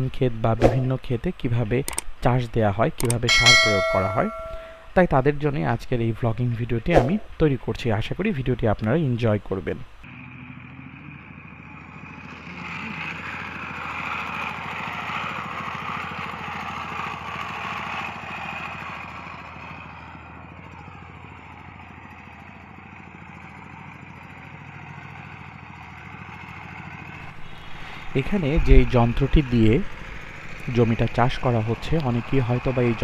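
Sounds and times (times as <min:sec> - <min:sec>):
power tiller engine running: 0:10.1 - 0:33.0.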